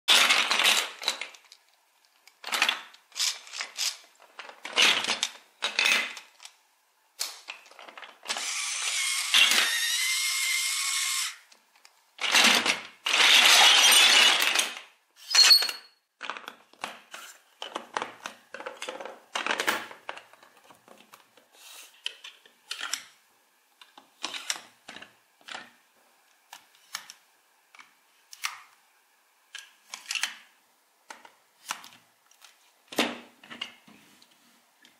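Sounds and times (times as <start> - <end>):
plastic toy bricks clattering: 0.1 - 1.6, 2.2 - 6.6, 7.2 - 9.9, 12.2 - 21.2.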